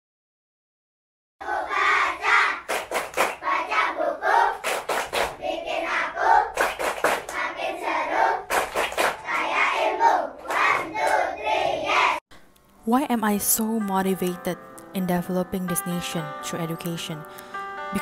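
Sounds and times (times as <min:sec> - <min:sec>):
children chanting in unison: 0:01.4 - 0:12.2
sharp hand claps: 0:02.6 - 0:03.4, 0:04.6 - 0:05.4, 0:06.6 - 0:07.4, 0:08.5 - 0:09.5, 0:10.4 - 0:11.2.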